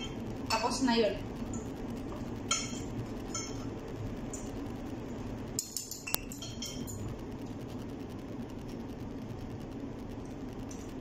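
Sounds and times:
steady low hum: 0.0 - 11.0
cutlery clinking on dishes: 5.6 - 7.0.

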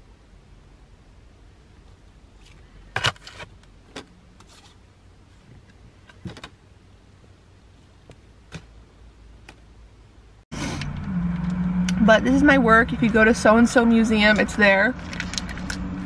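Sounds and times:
postcards rustling and clicking: 15.0 - 15.9.

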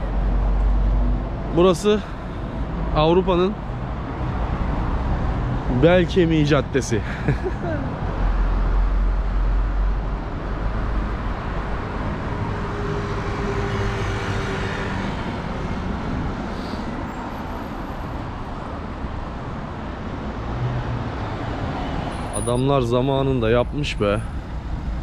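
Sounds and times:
cars and buses passing: 0.0 - 25.0.

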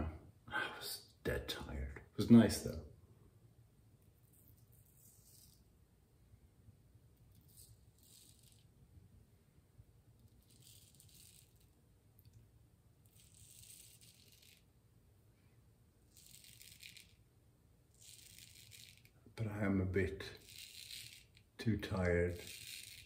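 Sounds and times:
razor scraping stubble: 16.1 - 17.2, 17.9 - 19.2, 20.3 - 23.0.

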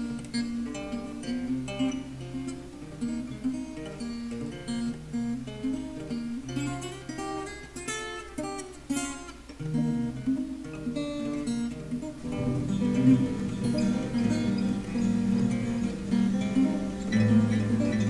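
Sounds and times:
acoustic guitar playing: 0.0 - 18.0.

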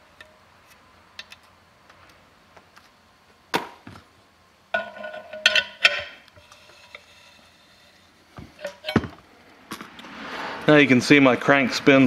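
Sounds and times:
ringing metal clanks: 4.8 - 6.2, 8.6 - 9.2.

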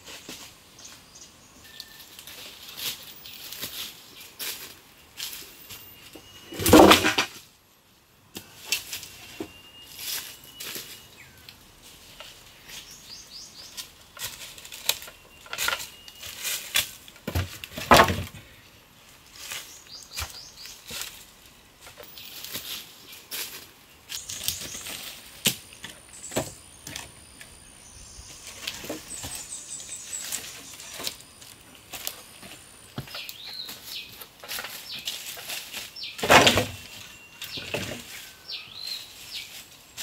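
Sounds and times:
rustling through dry leaves: 0.0 - 7.6, 8.4 - 40.0
birds chirping: 0.2 - 7.0, 8.4 - 40.0
wooden poles knocking: 6.6 - 7.3, 17.2 - 18.4.

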